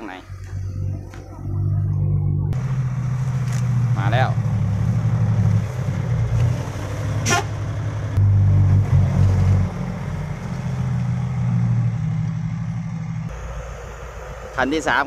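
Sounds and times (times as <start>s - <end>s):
diesel truck engine revving: 0.0s - 15.0s.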